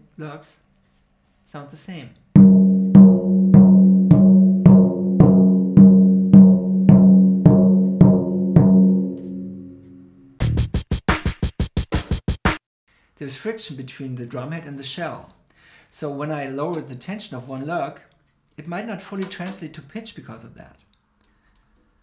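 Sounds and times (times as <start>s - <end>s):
tom drum struck with mallet: 2.4s - 9.6s.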